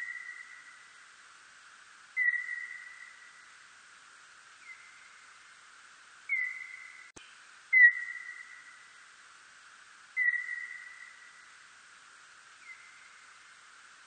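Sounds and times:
whistle-like bat calls: 0.0s - 0.8s, 2.2s - 3.4s, 6.3s - 7.1s, 7.7s - 8.9s, 10.2s - 11.4s, 12.6s - 13.3s
steady hiss: 0.0s - 14.0s.

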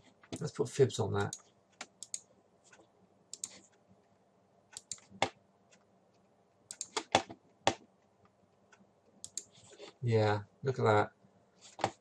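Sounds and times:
mouse and keyboard clicks: 1.2s - 3.8s, 4.7s - 5.8s, 6.7s - 7.8s, 9.2s - 9.5s.

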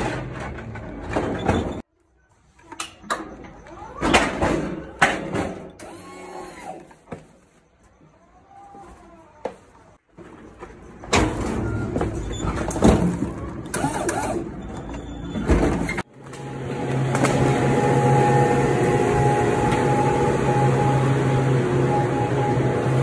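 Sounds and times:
refrigeration fans humming: 16.1s - 23.0s.

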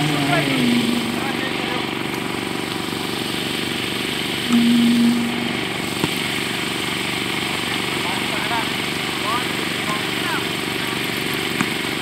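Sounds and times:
steady low tone: 0.0s - 2.0s, 4.5s - 6.7s
small engine running: 0.0s - 12.0s.

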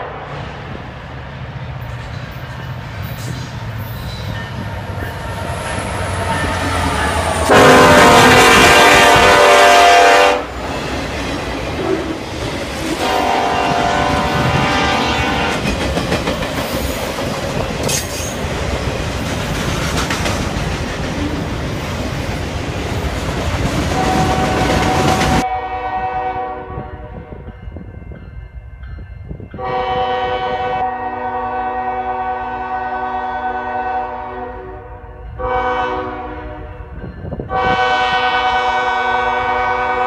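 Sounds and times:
train rumble and wheel clatter: 0.0s - 40.0s
locomotive air horn: 7.3s - 10.6s, 13.0s - 15.7s, 24.0s - 27.4s, 29.6s - 36.9s, 37.5s - 40.0s.

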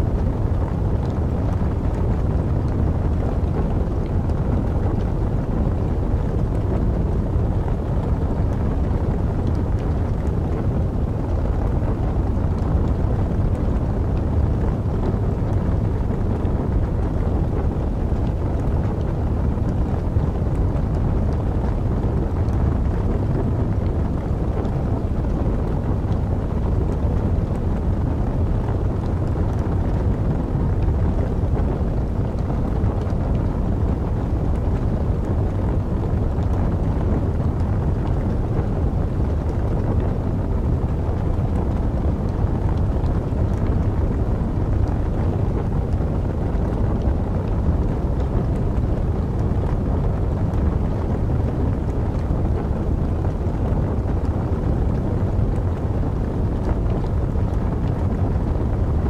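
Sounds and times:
steady low wind: 0.0s - 59.0s
burning logs crackling: 5.7s - 49.8s.

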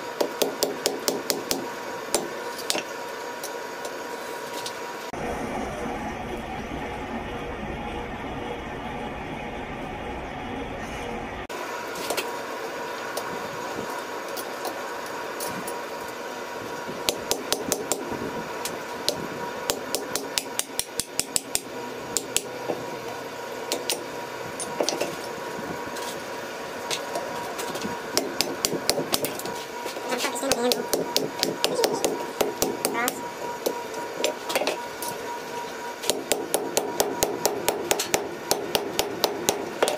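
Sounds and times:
forge air blower whirring: 0.0s - 39.9s.

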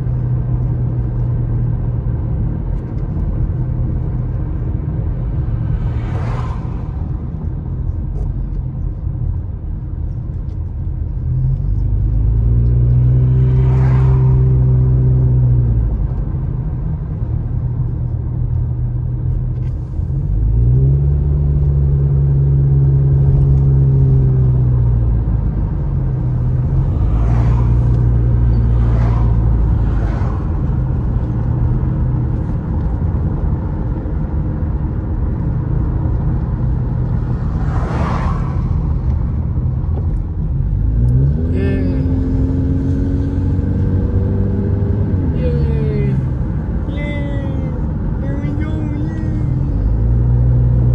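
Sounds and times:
car engine and tyre rumble: 0.0s - 50.9s
passing cars whooshing: 5.2s - 7.7s, 12.2s - 15.7s, 25.9s - 32.7s, 36.6s - 46.9s.

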